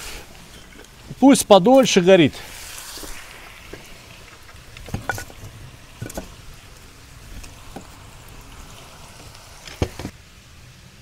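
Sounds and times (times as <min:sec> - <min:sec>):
logs knocking in firebox: 0:03.7 - 0:06.4.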